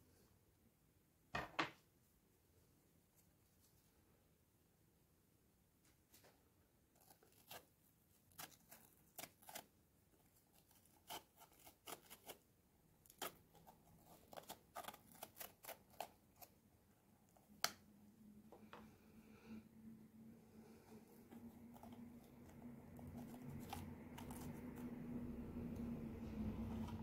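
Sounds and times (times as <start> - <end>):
knife cutting bell pepper: 22.5 - 24.9.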